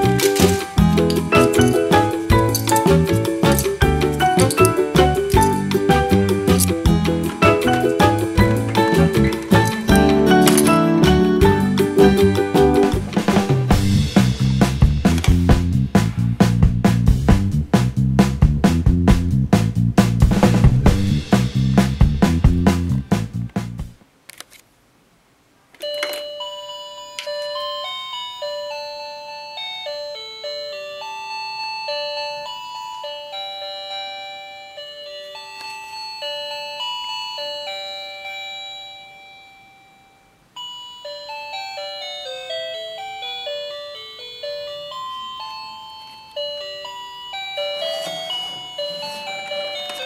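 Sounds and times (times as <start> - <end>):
plastic toy rattle: 0.0 - 5.7, 6.5 - 6.8, 8.6 - 10.8
toy electronic beeping melody: 25.8 - 50.0.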